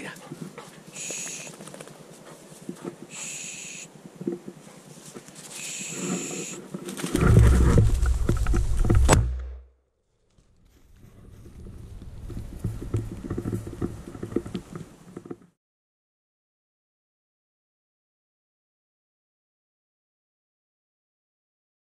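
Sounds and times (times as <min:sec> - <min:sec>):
rustling of brush and branches: 0:00.0 - 0:09.4, 0:10.1 - 0:15.4
twigs crackling: 0:00.3 - 0:09.2
microphone handling rumble: 0:06.8 - 0:09.6, 0:10.9 - 0:15.3.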